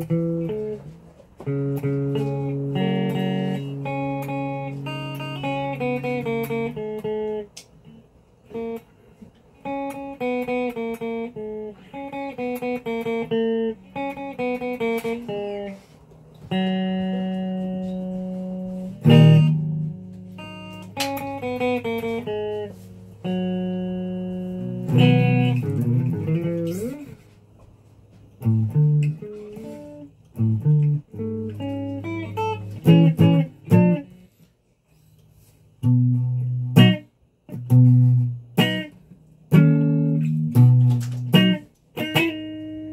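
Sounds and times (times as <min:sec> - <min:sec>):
electric guitar single notes: 0:00.0 - 0:08.9, 0:09.6 - 0:27.2, 0:28.3 - 0:34.2, 0:35.8 - 0:42.9.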